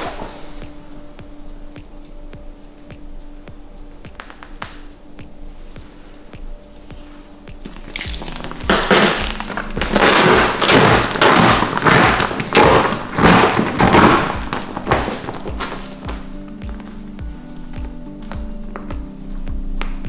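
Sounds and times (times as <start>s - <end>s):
plastic film crackling and rustling: 7.7s - 16.0s.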